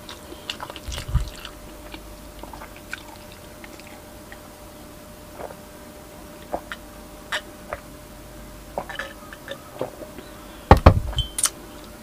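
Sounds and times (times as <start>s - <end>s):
person swallowing: 0.0s - 4.5s.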